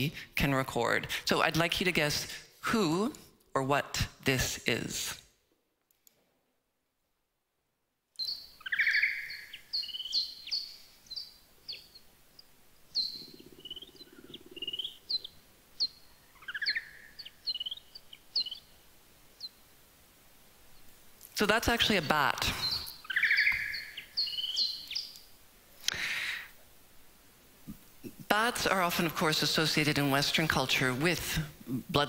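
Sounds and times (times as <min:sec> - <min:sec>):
bat chirps and squeaks: 0:08.2 - 0:12.0, 0:12.9 - 0:18.7, 0:22.6 - 0:25.2.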